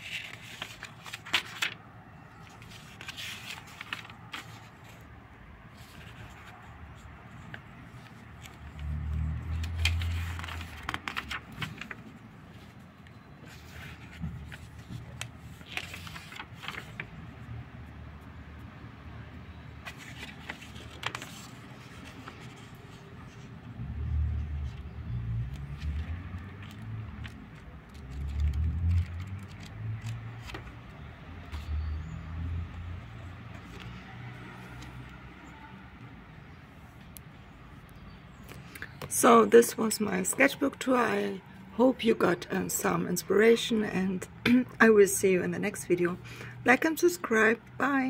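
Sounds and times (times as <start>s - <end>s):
notebook pages turning: 0.0s - 5.1s, 5.7s - 17.2s, 19.8s - 23.5s, 24.1s - 32.1s, 33.2s - 35.1s.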